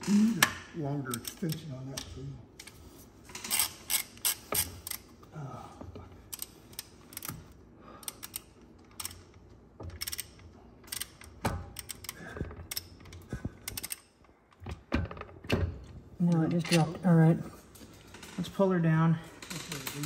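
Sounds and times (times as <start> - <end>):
socket ratchet clicking: 3.4 - 5.1, 6.3 - 14.1.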